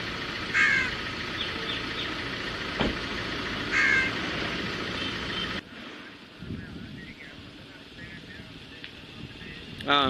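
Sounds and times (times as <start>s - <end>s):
crows cawing: 0.5s - 1.8s, 3.7s - 4.2s.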